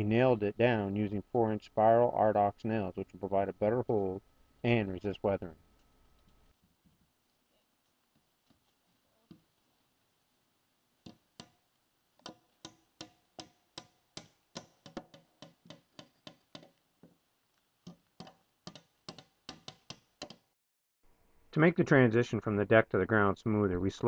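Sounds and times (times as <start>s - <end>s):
hammers driving nails into wood: 11.0s - 11.6s, 12.2s - 16.8s, 17.9s - 20.5s.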